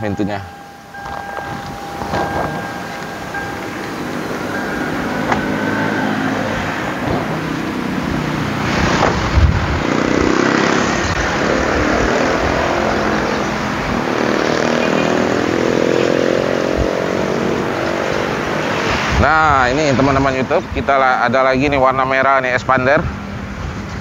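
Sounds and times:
vehicle engine running: 0.0 - 15.4
car door shutting: 1.0 - 5.8, 7.0 - 7.4, 8.8 - 9.5.

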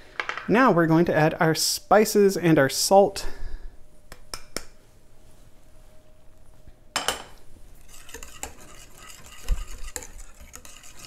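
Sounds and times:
utensil clinking on bowl: 7.0 - 11.0
stirring batter in bowl: 7.8 - 11.0.

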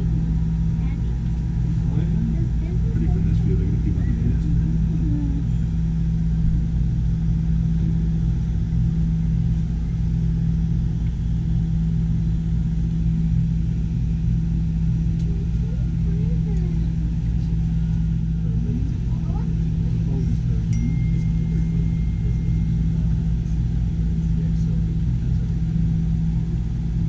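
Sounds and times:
faint voices: 0.0 - 5.8, 15.0 - 27.0
low mechanical hum: 0.0 - 27.0.

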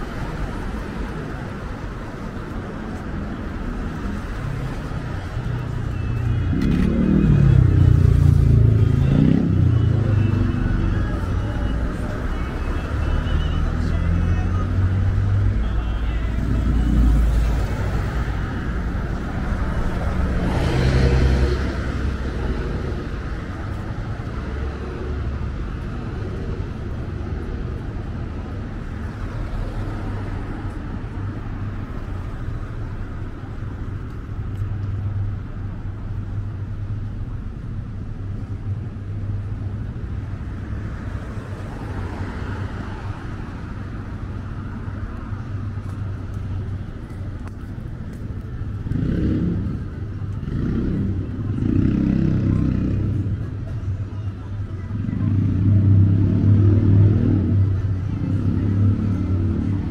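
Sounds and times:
traffic rumble: 0.0 - 59.9
vehicles passing close by: 0.0 - 59.9.

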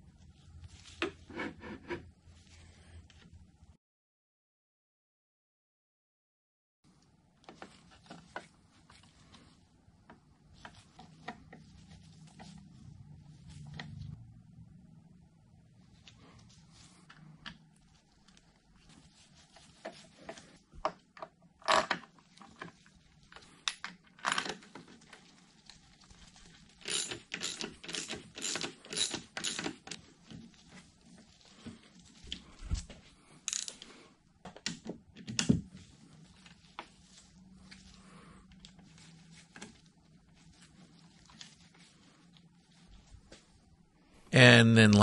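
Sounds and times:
metal tools clinking on metal: 26.9 - 29.8.

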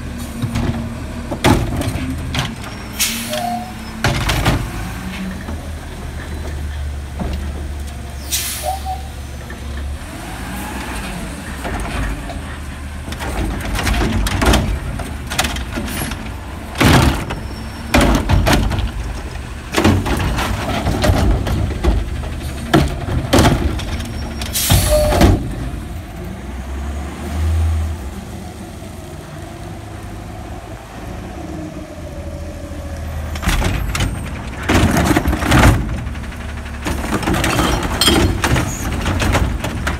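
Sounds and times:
diesel engine running: 0.0 - 39.9
cart banging against hopper: 0.2 - 7.8, 11.0 - 26.0, 33.3 - 39.9.

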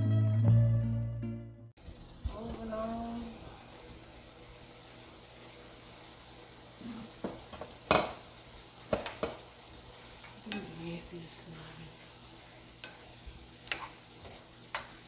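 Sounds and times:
mushrooms sizzling in a frying pan: 1.8 - 15.0
spatula knocking and scraping pan: 7.1 - 8.2, 8.9 - 9.5, 12.8 - 15.0.

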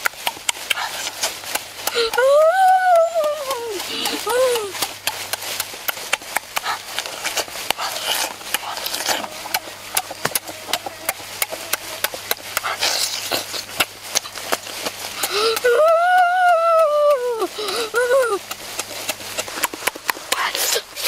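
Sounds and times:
boy chewing with mouth open: 0.0 - 21.0
high drawn-out vocal note: 8.6 - 13.5.

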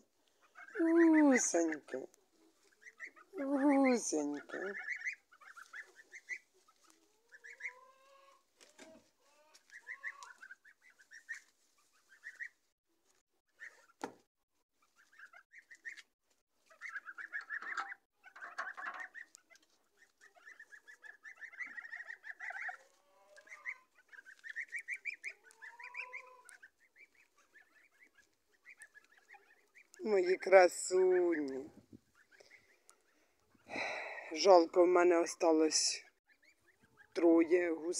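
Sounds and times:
goslings peeping: 0.2 - 12.6, 13.5 - 14.0, 14.8 - 37.9
thump: 14.0 - 14.2.

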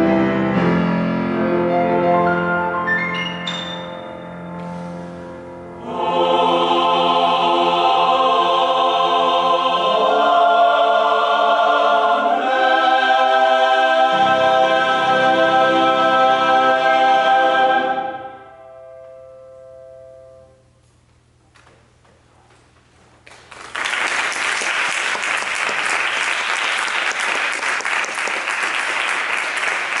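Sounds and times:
choir with piano holding chord: 3.7 - 18.9
audience applause: 23.3 - 30.0.

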